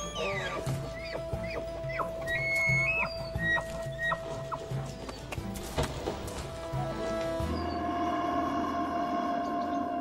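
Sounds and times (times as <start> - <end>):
background music with held note: 6.0 - 10.0.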